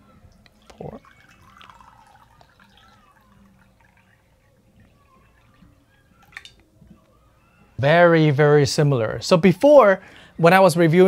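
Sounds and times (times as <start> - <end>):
water pouring into mugs: 0.3 - 6.6.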